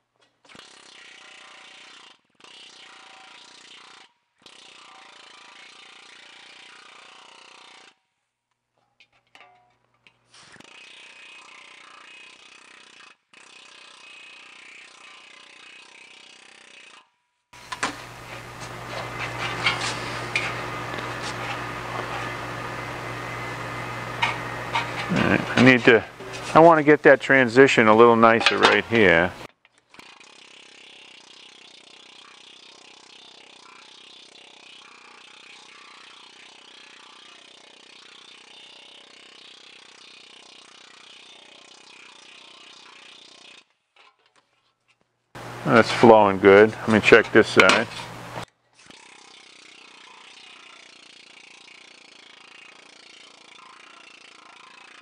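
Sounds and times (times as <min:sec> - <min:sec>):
air hammer pecking sheet metal: 0:17.6 - 0:26.9, 0:46.9 - 0:48.4.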